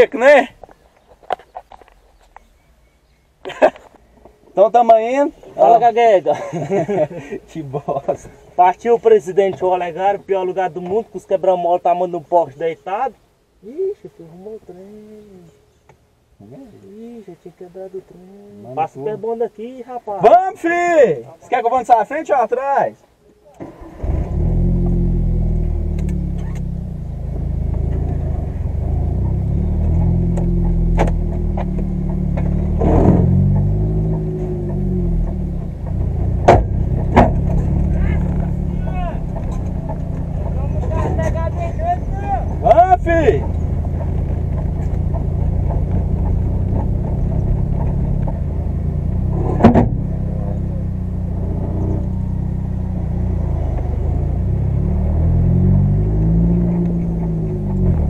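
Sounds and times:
car engine running at low revs: 23.7 - 58.0
sharp knock: 36.4 - 37.6, 49.5 - 50.0.

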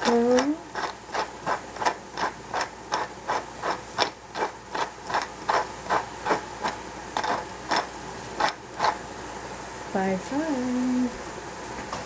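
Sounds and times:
pepper mill grinding: 0.0 - 9.0.

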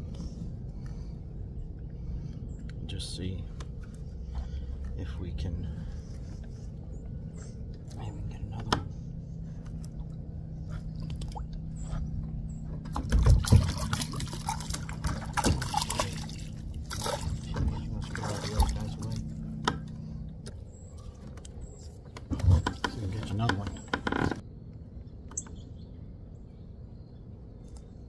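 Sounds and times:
water splashing and sloshing: 0.0 - 24.4
steady low hum: 0.0 - 28.0.

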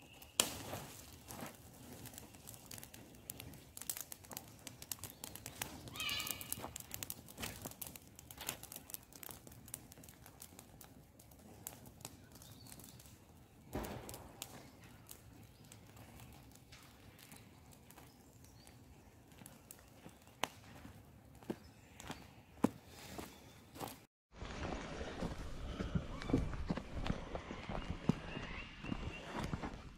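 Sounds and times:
footsteps on dry ground: 0.0 - 8.8, 13.8 - 29.9
campfire crackling and popping: 0.0 - 22.8.

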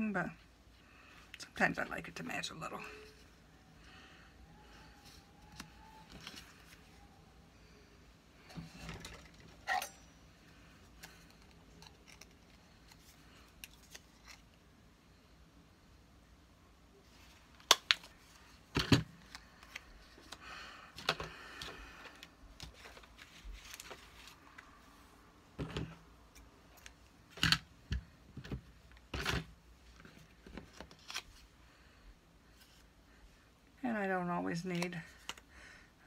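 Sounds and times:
paper rustling: 22.1 - 24.8.

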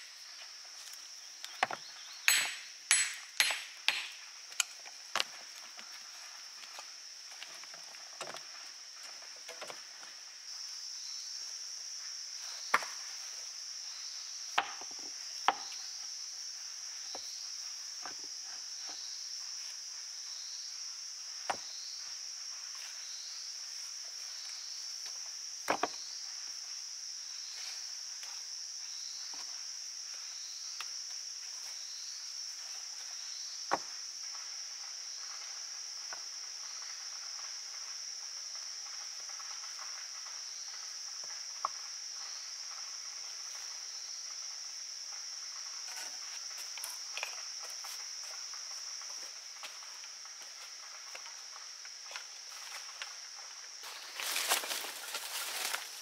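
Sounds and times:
insects droning: 0.0 - 56.0
stones clacking together: 1.5 - 5.3.

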